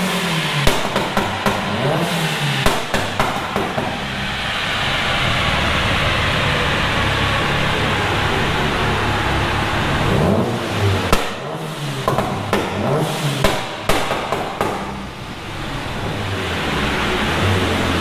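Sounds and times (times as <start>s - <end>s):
exhaust bangs and pops: 0.0s - 4.5s, 6.7s - 16.3s
car engine running hard: 0.0s - 18.0s.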